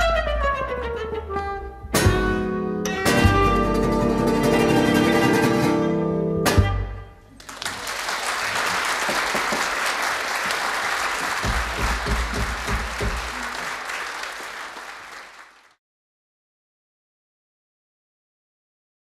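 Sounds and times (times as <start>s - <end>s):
audience applauding: 7.3s - 15.8s.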